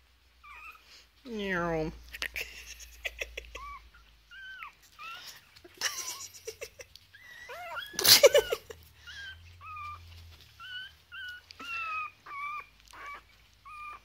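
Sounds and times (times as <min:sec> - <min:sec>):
puppy whining: 0:00.4 - 0:14.0
puppy yelp: 0:03.3 - 0:06.3, 0:07.1 - 0:14.0.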